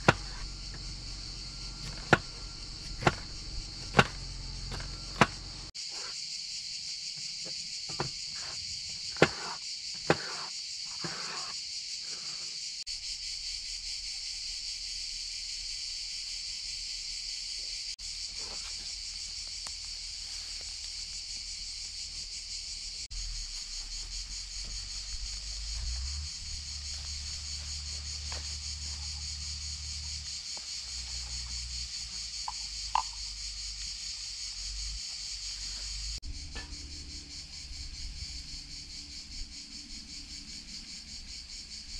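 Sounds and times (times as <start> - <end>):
insect chorus: 0.0 - 41.9
low rumble: 0.4 - 5.7, 36.2 - 40.3.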